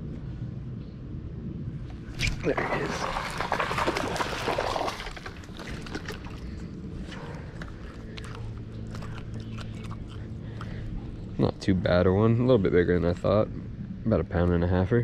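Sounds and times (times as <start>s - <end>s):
fish splashing at water surface: 2.1s - 8.2s.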